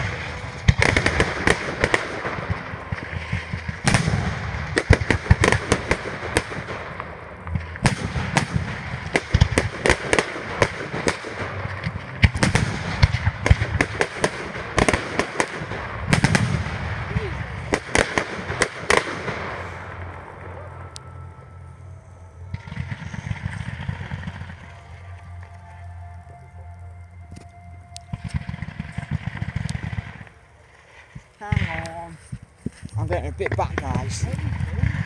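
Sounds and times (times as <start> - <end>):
fireworks bangs: 0.0 - 21.0, 22.5 - 25.7, 28.1 - 35.0
fireworks crackling: 0.0 - 35.0.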